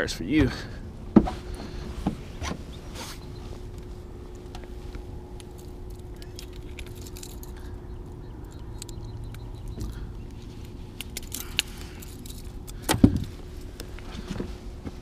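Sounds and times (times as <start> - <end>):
faint steady hum: 0.0 - 15.0
metallic clicks of pliers and hooks: 5.9 - 9.9.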